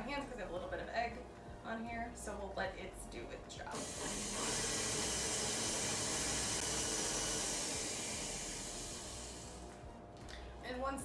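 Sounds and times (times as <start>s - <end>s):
stand mixer whirring: 3.8s - 9.6s.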